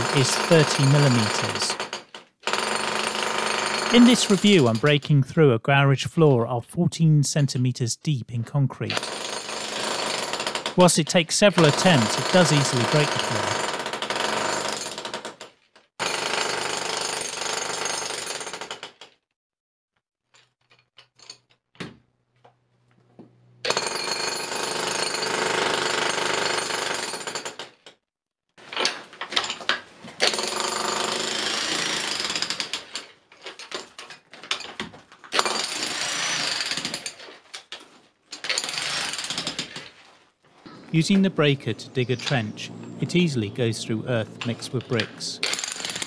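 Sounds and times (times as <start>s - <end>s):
electric breaker hammering concrete: 0.0s - 4.2s, 11.6s - 15.4s, 23.7s - 27.7s, 45.4s - 46.0s.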